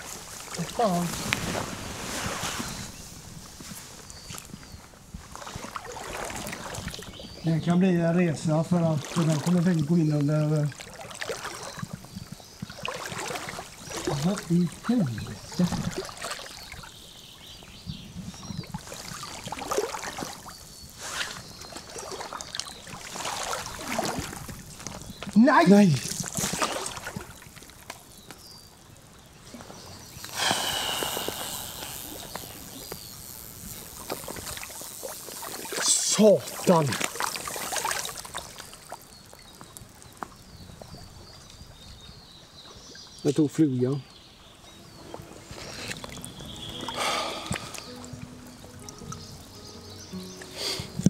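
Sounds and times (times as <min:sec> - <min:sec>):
river water sloshing around legs: 0:00.0 - 0:07.4, 0:08.7 - 0:17.6, 0:18.4 - 0:43.2, 0:44.1 - 0:51.0
small splashes: 0:05.3 - 0:07.2, 0:08.7 - 0:17.0, 0:18.6 - 0:28.4, 0:29.4 - 0:41.6, 0:44.9 - 0:49.4.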